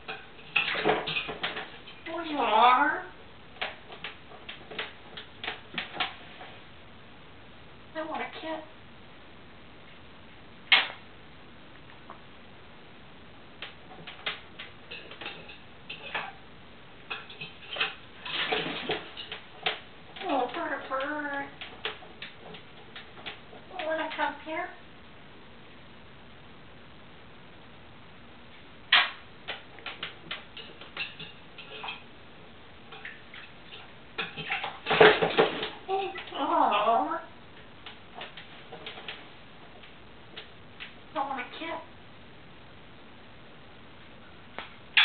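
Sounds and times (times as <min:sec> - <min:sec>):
parrot splashing in water bowl: 0:17.1 - 0:24.4, 0:32.9 - 0:36.8.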